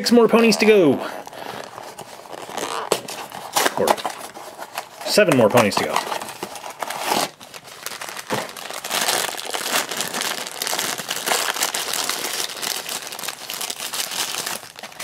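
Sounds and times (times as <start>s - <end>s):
foil wrapper crinkling: 1.2s - 15.0s.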